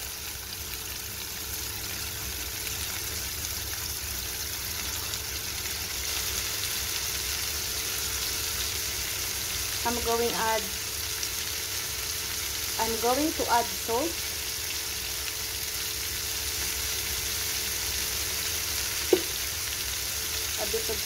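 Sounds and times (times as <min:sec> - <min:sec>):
vegetables sizzling in oil: 0:00.0 - 0:21.0
person speaking: 0:12.8 - 0:14.2.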